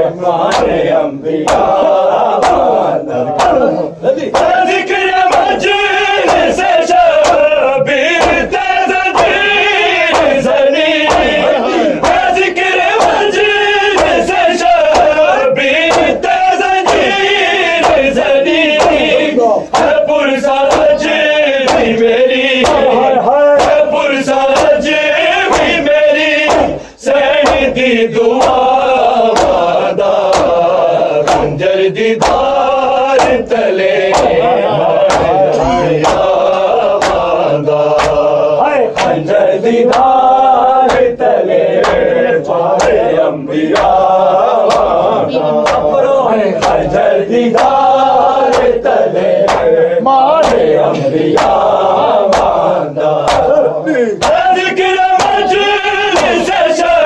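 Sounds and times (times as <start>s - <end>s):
men chanting in unison: 0.0s - 57.0s
hands striking chests: 18.8s - 20.0s, 34.1s - 34.4s.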